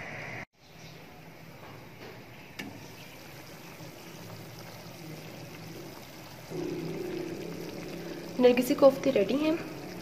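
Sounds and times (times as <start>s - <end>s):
gravy simmering in a pan: 2.6s - 10.0s.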